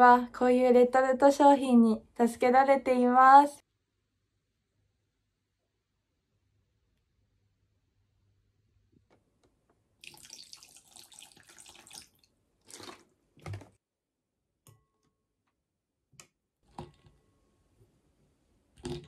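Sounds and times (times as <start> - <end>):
tap water running into sink: 10.0 - 13.8
water splashes: 10.0 - 13.8.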